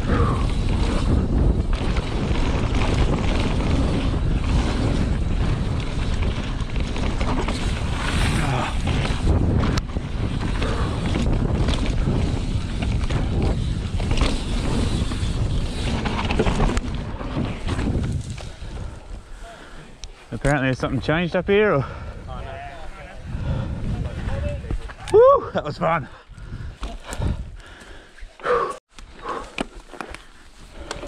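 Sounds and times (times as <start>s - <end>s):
wind noise on microphone: 0.0s - 19.4s, 20.4s - 28.0s
tyres rumbling on dirt trail: 0.0s - 31.0s
bike knocks and rattles: 0.2s - 19.0s.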